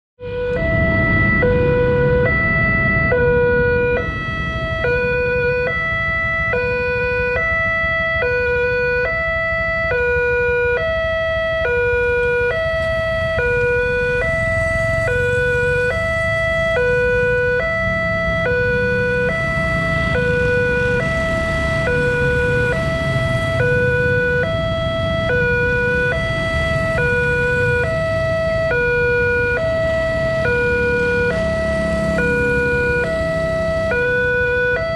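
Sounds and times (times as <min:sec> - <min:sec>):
electronic two-tone warning alarm: 0:00.2 - 0:34.9
steady low rumble: 0:00.3 - 0:06.5.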